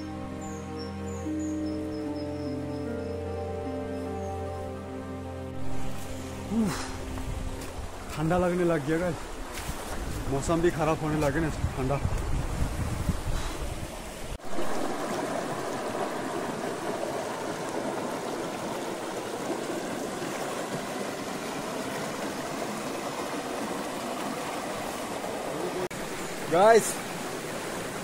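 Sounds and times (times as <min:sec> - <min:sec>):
river rushing over boulders: 0:13.9 - 0:28.0.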